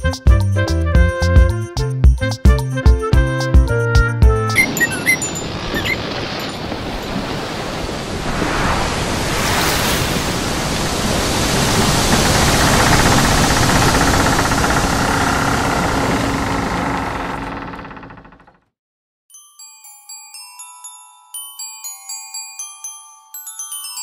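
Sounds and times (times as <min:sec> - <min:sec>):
ocean waves rushing: 0:04.6 - 0:18.2.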